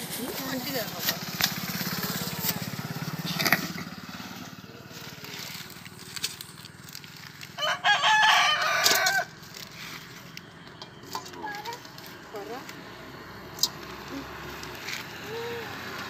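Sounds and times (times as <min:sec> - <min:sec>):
rooster crowing: 0:07.6 - 0:09.4.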